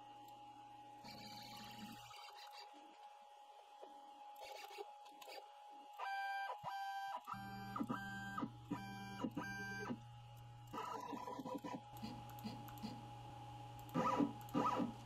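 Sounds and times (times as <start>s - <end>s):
steady low hum: 7.3s - 15.0s.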